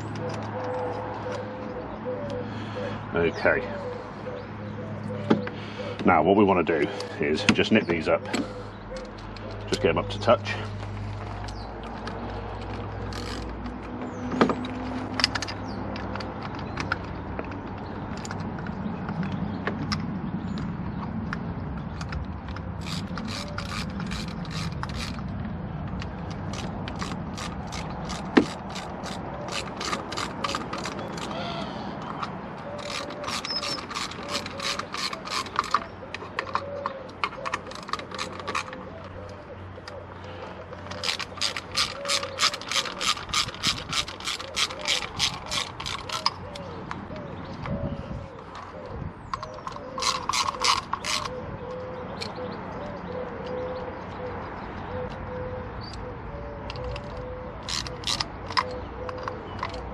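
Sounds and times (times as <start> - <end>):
hand ratchet clicking: 11.2 - 17.2, 22.0 - 39.2, 40.8 - 47.0, 49.3 - 51.4, 56.7 - 59.9.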